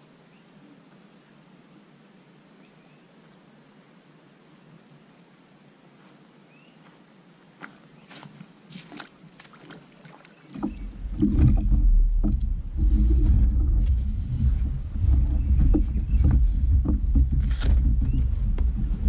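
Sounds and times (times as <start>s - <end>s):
footsteps on gravel: 7.6s - 19.0s
kayak gear knocking: 10.6s - 19.0s
loud low rumble: 10.8s - 19.0s.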